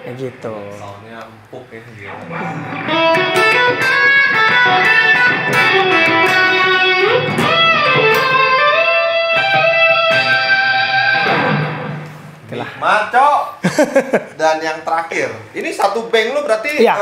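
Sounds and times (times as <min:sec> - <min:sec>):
overdriven electric guitar solo: 0:02.1 - 0:12.4.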